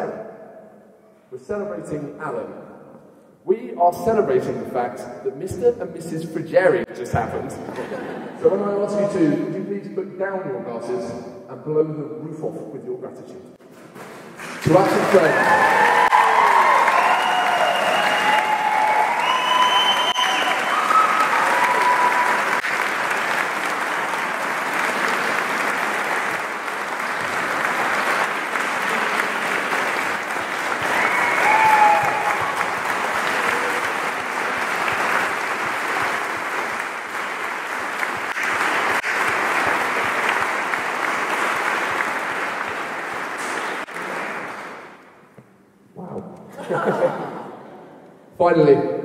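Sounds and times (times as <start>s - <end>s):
people applauding: 13.8s - 45.2s.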